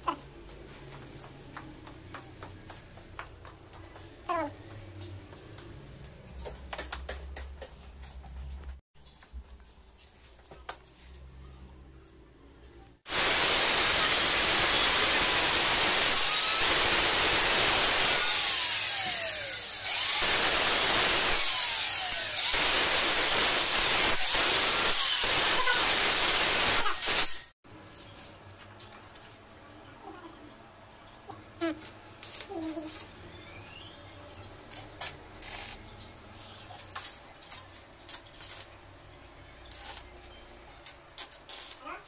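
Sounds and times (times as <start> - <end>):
angle grinder grinding metal: 13.1 - 27.5.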